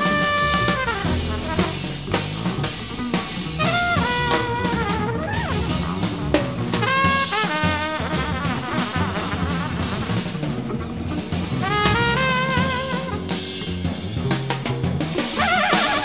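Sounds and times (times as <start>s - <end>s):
trumpet phrases: 0.0s - 2.2s, 3.6s - 10.6s, 11.6s - 13.5s, 15.4s - 16.0s
drum kit: 0.0s - 16.0s
walking bass: 0.0s - 16.0s.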